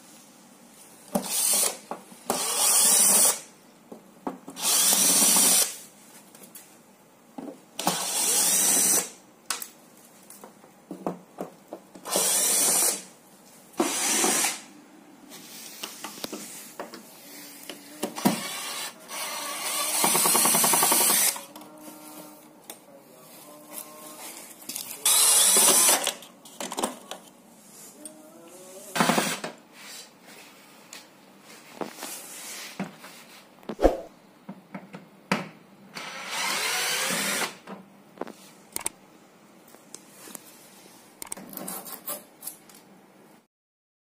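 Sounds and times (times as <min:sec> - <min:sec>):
cordless drill whirring: 0:04.6 - 0:05.8, 0:07.8 - 0:09.1, 0:12.1 - 0:13.0, 0:18.2 - 0:21.4, 0:25.0 - 0:26.1, 0:36.0 - 0:37.6.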